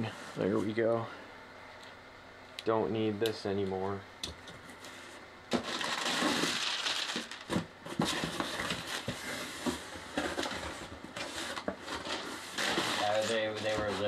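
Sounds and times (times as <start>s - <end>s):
cardboard flaps scraping and rustling: 4.8s - 14.0s.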